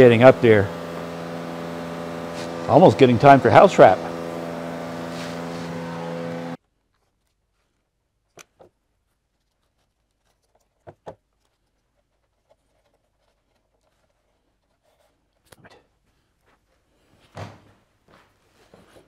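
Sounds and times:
loud steady hum: 0.0s - 6.6s.

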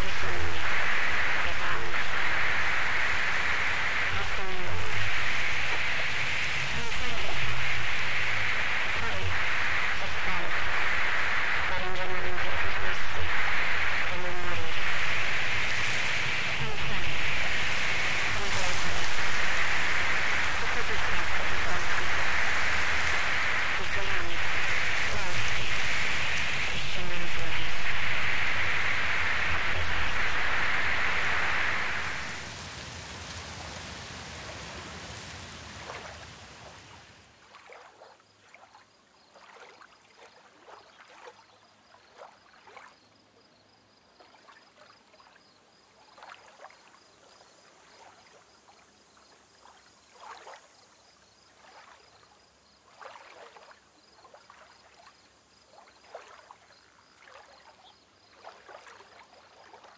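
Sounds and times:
rushing water: 0.0s - 38.7s
water trickles and drips: 32.5s - 41.5s.

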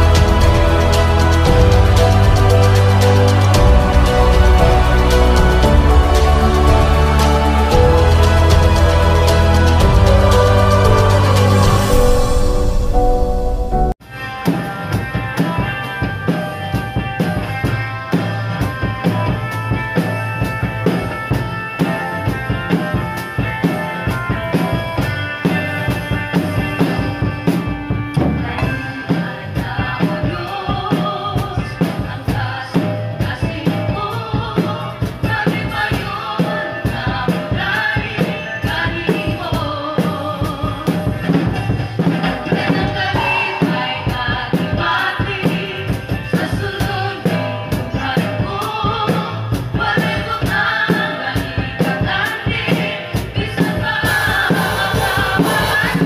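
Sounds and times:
person singing: 0.0s - 14.0s, 28.4s - 56.0s
drum kit beat: 0.0s - 56.0s
recorded backing track: 0.0s - 56.0s.

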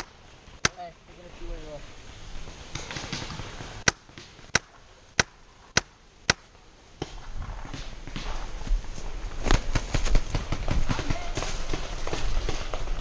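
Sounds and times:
rustling of leaves and gear: 0.0s - 13.0s
paintball marker shots: 2.7s - 8.3s.

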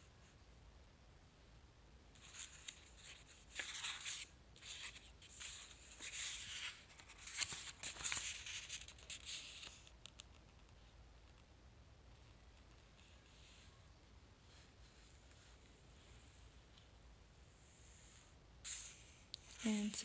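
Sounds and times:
book pages rustling and turning: 2.2s - 10.9s.

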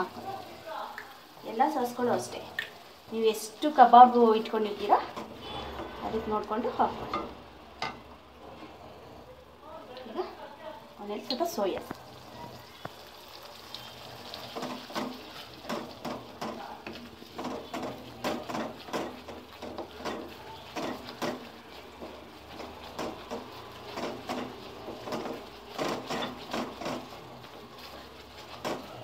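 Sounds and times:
faint sizzle: 0.0s - 29.0s
wooden spatula scraping metal pan: 4.3s - 7.4s, 14.3s - 29.0s.

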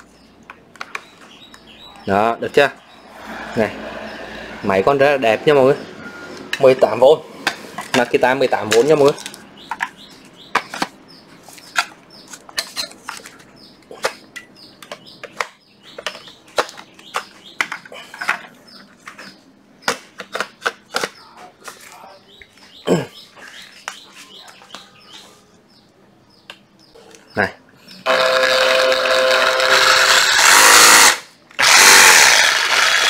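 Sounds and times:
power tools being handled: 7.4s - 21.9s, 28.1s - 33.0s.

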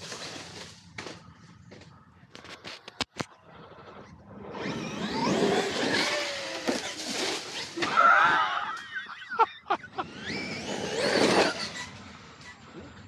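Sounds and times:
tyres on dirt: 0.0s - 13.0s
toy truck motors whining: 3.4s - 9.1s, 9.9s - 13.0s.

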